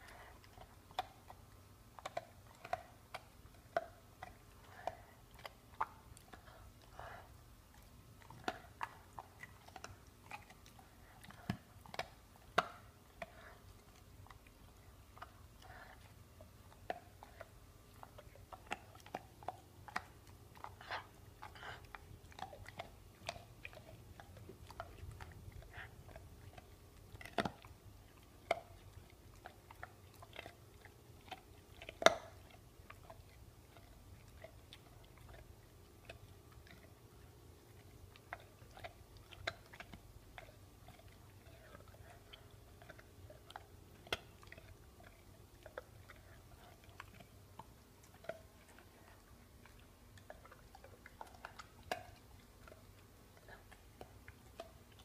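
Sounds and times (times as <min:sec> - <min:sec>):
dog gnawing a bone: 0:00.0 - 0:55.0
teeth crunching on bone: 0:16.7 - 0:55.0.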